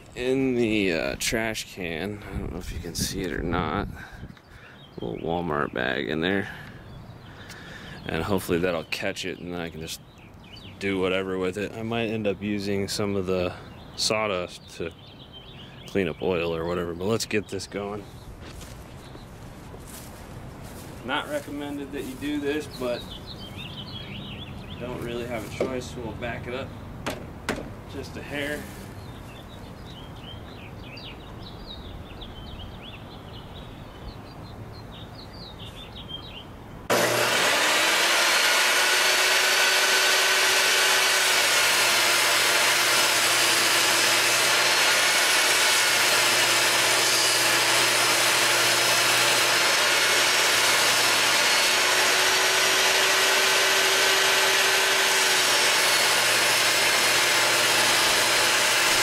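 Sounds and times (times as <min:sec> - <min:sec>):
birds chirping: 0:00.0 - 0:59.0
table saw cutting board: 0:36.9 - 0:59.0.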